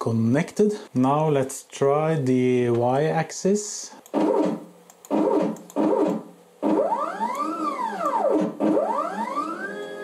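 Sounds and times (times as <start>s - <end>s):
stepper motors whining: 5.2s - 10.0s.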